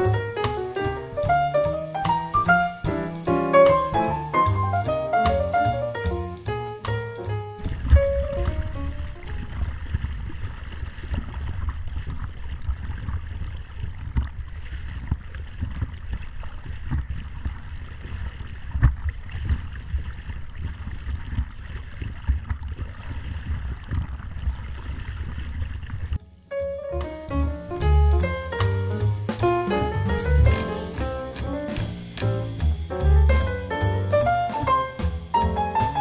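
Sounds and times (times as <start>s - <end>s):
short splashes: 0.0s - 36.0s
wind rumble on microphone: 7.6s - 26.2s
water lapping against paddleboard: 7.6s - 26.3s, 27.0s - 32.9s.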